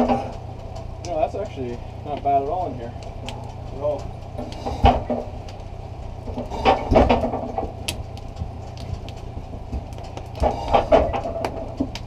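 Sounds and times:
steady low hum: 0:00.0 - 0:12.0
metal stove knocking and scraping: 0:03.2 - 0:05.5, 0:06.2 - 0:12.0.

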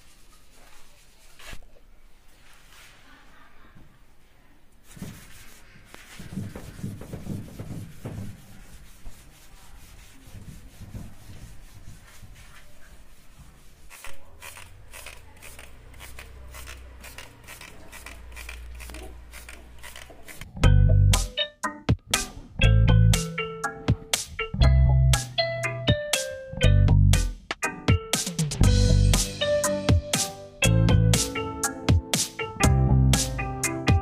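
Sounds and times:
hand scrubbing paste on metal: 0:00.0 - 0:01.6, 0:04.8 - 0:20.5
trigger spray bottle spraying: 0:13.9 - 0:20.5.

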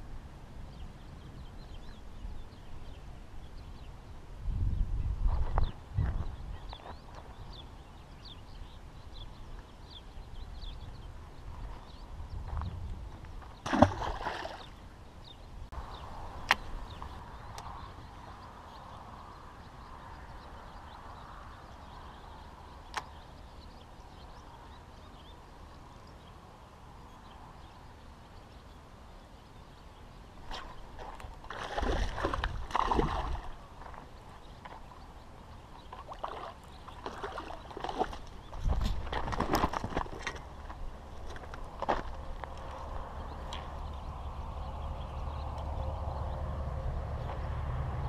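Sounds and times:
fish splashing and thrashing in water: 0:13.6 - 0:14.7, 0:30.5 - 0:34.1, 0:35.9 - 0:40.4.

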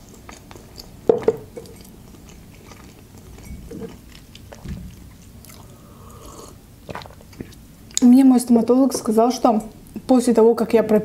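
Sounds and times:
mouth chewing food: 0:00.0 - 0:08.1.

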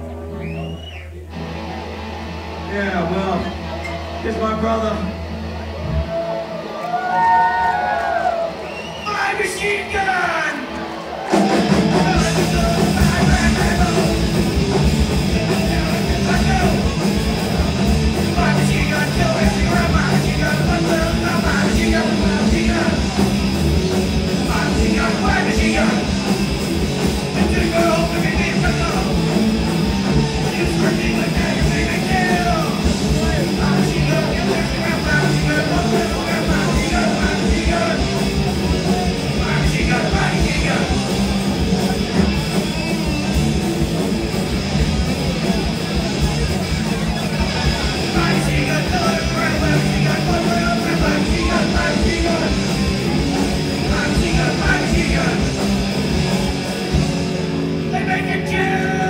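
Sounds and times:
distorted electric guitar: 0:00.0 - 0:10.0, 0:10.6 - 0:59.0
bass guitar: 0:00.0 - 0:59.0
drums: 0:00.0 - 0:59.0
singer shouting: 0:05.8 - 0:10.7, 0:15.2 - 0:17.4, 0:27.2 - 0:42.0, 0:47.2 - 0:55.5, 0:57.8 - 0:59.0.

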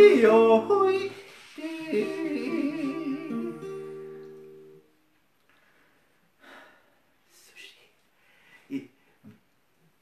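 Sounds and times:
man yodeling: 0:00.0 - 0:04.1
strummed acoustic guitar: 0:00.0 - 0:04.9.

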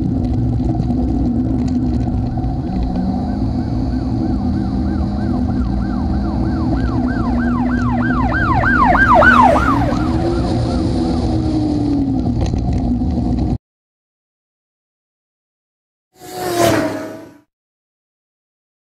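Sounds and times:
car road and engine noise: 0:00.0 - 0:13.6, 0:16.2 - 0:17.5
emergency vehicle yelp siren: 0:02.1 - 0:12.0.

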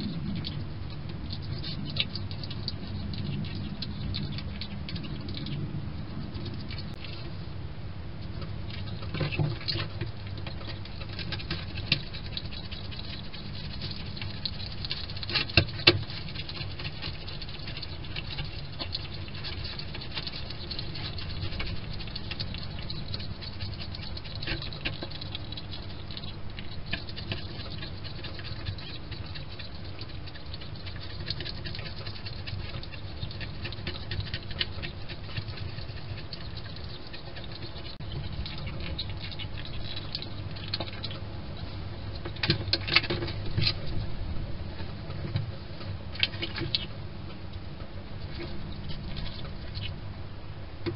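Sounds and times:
hedgehog chewing with crunching clicks: 0:00.0 - 0:50.9.

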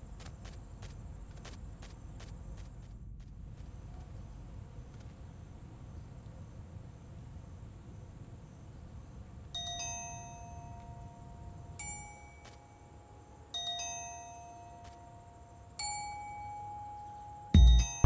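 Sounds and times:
faint low rumble: 0:00.0 - 0:09.5, 0:14.8 - 0:18.0.

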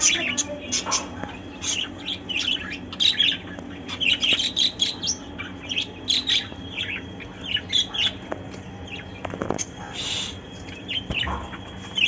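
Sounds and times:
budgerigars chirping: 0:00.0 - 0:08.2.

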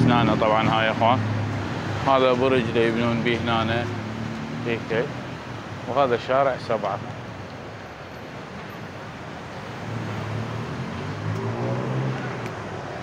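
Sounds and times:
vehicle engine passing: 0:00.0 - 0:05.7, 0:09.7 - 0:13.0
road traffic noise: 0:00.0 - 0:13.0.

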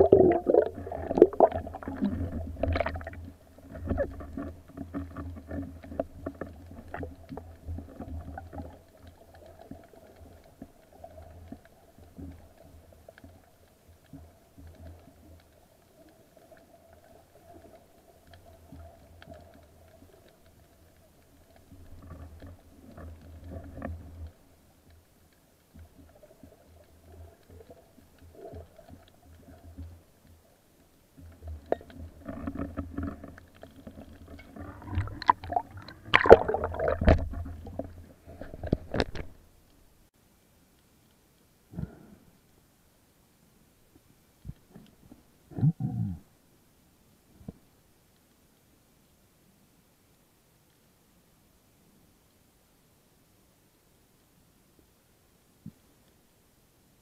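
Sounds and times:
underwater clicks and knocks: 0:00.0 - 0:09.8, 0:31.3 - 0:39.4
underwater rumble and hum: 0:00.0 - 0:57.0.

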